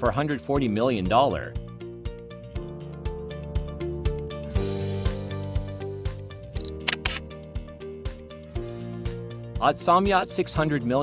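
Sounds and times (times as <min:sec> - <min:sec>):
background music with steady beat: 0:01.3 - 0:11.0
sharp clicks: 0:06.6 - 0:07.2.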